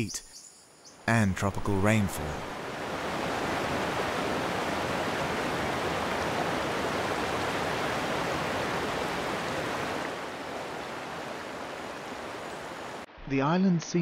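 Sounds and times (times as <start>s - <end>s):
waterfall rushing: 2.1s - 13.1s.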